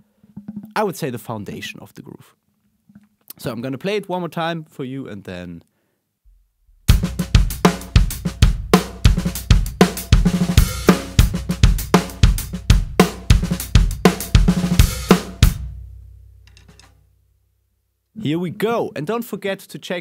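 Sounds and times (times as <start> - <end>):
drum kit groove: 6.8 - 16.9.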